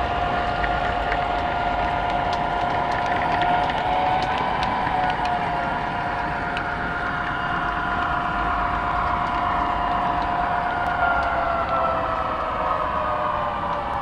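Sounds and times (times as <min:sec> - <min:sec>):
model train rolling: 0:00.0 - 0:08.3
multi-tone motor whine: 0:00.0 - 0:14.0.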